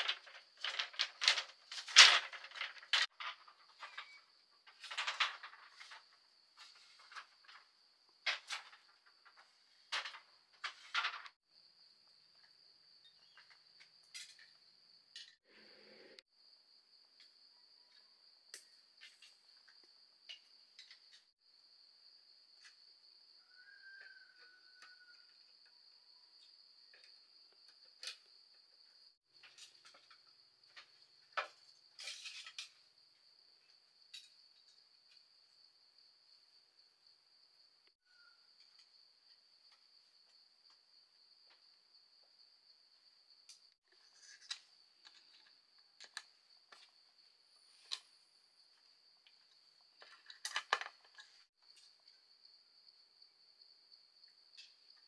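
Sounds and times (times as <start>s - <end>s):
insects trilling: 22.5s - 35.6s.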